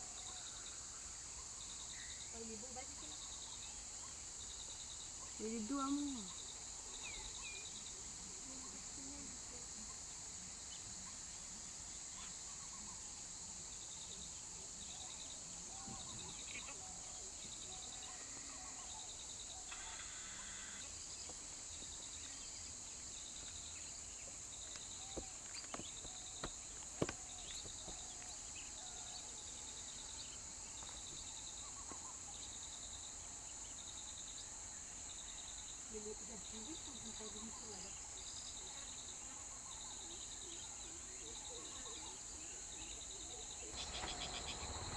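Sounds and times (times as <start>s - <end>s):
pulsed insect chirp: 12.1s - 44.9s
high-pitched insect drone: 19.7s - 21.0s.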